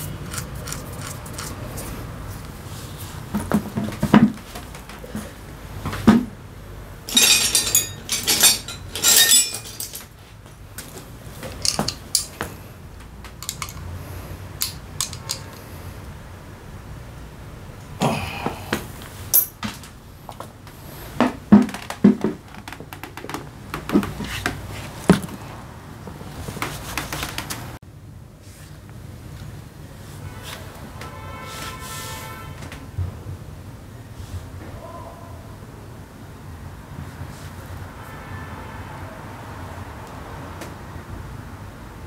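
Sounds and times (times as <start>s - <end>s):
metal parts clinking: 7.1s - 10.1s, 11.6s - 12.4s, 13.4s - 13.9s, 14.6s - 15.6s, 19.3s - 19.6s.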